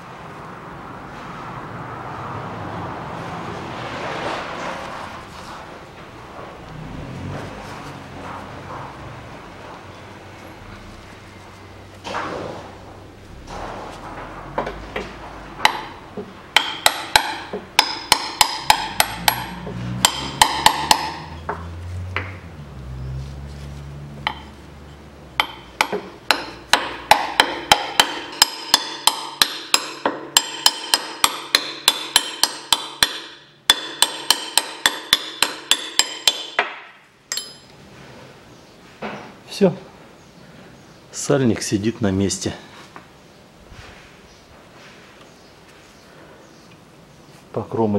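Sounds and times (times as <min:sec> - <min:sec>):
hammer striking metal mandrel: 0:13.4 - 0:22.3, 0:24.2 - 0:24.6, 0:25.4 - 0:37.7.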